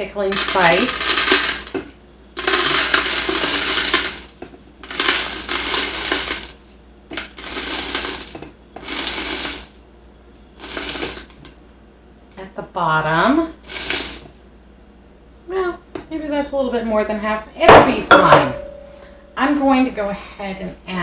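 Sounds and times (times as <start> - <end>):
dry spice rattling into glass jar: 0.3 - 1.7.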